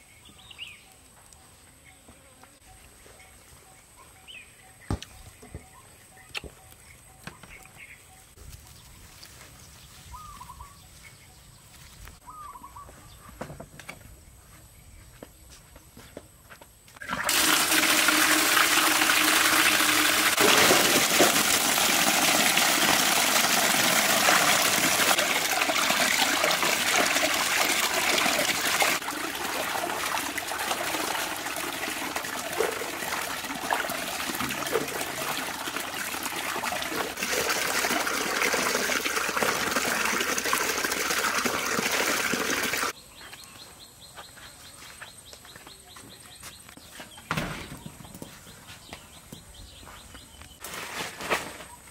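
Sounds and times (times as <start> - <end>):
water gushing into a metal basin: 17.0 - 42.9.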